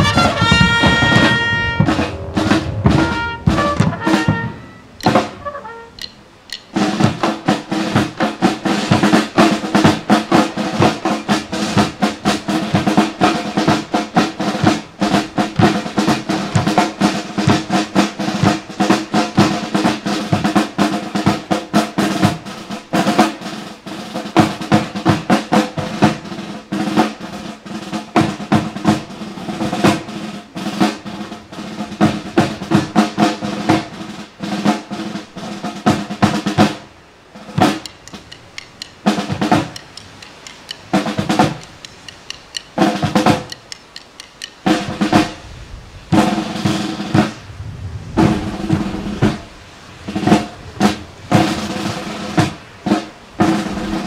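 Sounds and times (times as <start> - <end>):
bass drum: 0.0 - 5.4
marching snare drums: 0.0 - 45.4, 46.1 - 47.4, 48.2 - 54.0.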